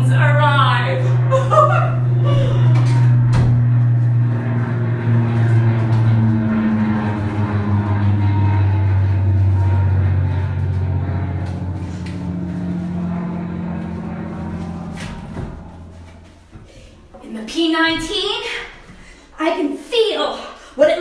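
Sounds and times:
piston aircraft engine droning: 0.0s - 21.0s.

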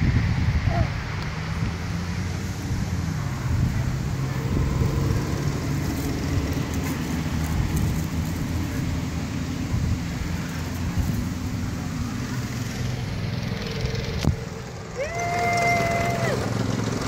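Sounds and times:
go-kart engines droning: 0.0s - 17.0s.

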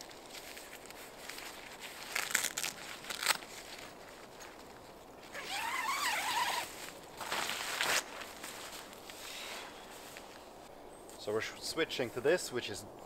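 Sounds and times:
nylon fabric rustling: 0.0s - 10.5s
tent zipper being pulled: 5.3s - 8.1s.

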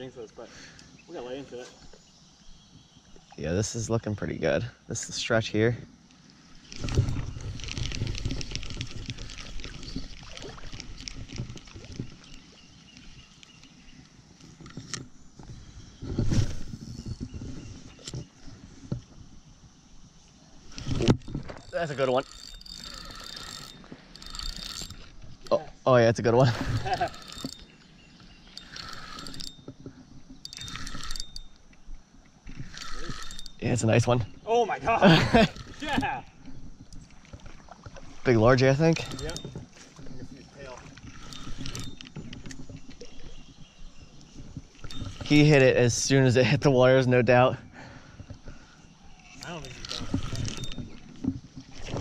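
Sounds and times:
water splashing in creek: 6.6s - 14.7s, 35.1s - 43.4s, 49.2s - 52.0s
irregular crackle: 6.7s - 15.0s
fishing reel whirring and clicking: 6.7s - 18.3s, 20.6s - 25.6s, 26.4s - 34.4s, 35.0s - 37.0s, 38.0s - 43.6s, 44.8s - 46.6s, 48.3s - 52.0s.

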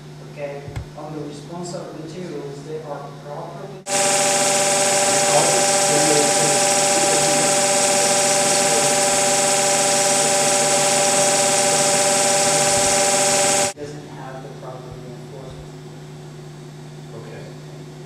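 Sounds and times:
machine buzzing hum: 3.8s - 13.8s.

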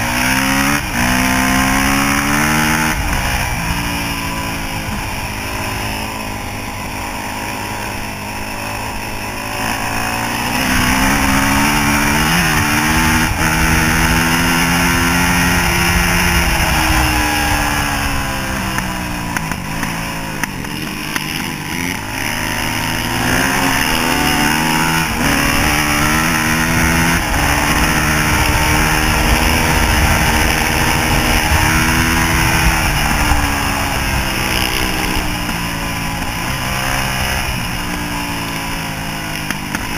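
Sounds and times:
dirt bike engine revving: 0.0s - 39.9s
wind rushing over microphone: 10.5s - 20.6s, 22.8s - 37.9s.

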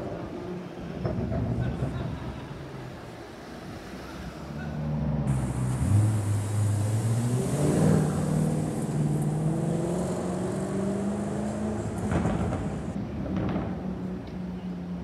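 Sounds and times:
car accelerating away: 4.8s - 13.0s.

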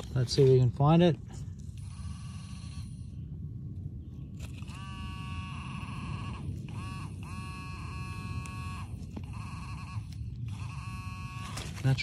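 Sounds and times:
metal detector buzzing: 1.7s - 3.2s, 4.4s - 12.0s.

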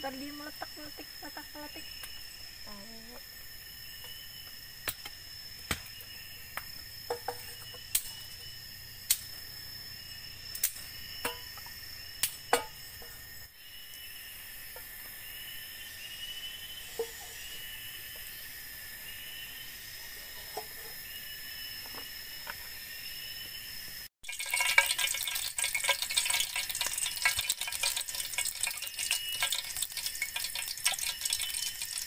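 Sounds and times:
forest insects chirping: 0.0s - 32.0s
campfire crackling and popping: 8.9s - 9.5s, 10.5s - 12.9s, 24.2s - 32.0s.

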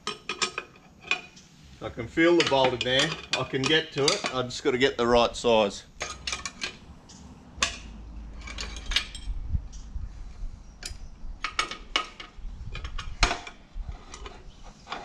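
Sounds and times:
spanner clinking on metal: 2.3s - 4.5s, 6.0s - 9.4s.

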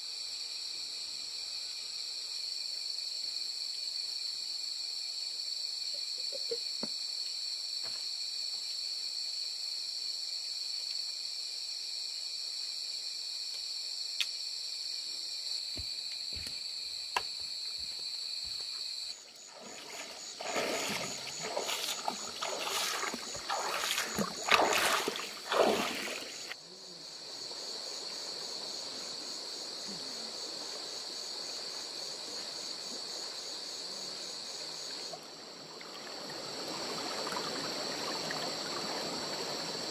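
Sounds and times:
crickets trilling: 0.0s - 39.9s
splashing through water: 19.4s - 26.6s
stream water rushing: 19.5s - 26.6s, 35.6s - 39.9s.

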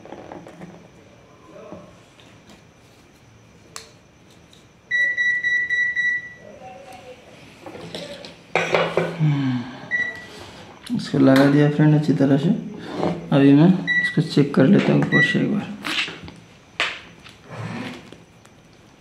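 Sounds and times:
high-pitched electronic beep: 4.9s - 6.4s.

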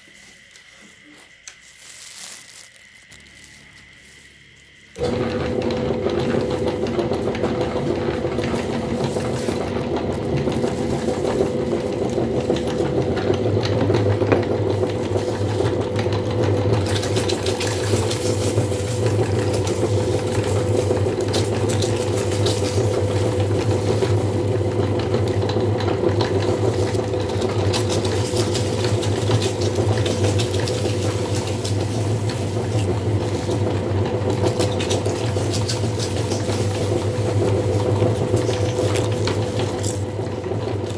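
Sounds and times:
chips crackling in grinder: 0.0s - 40.9s
grinder motor humming: 3.0s - 40.9s.

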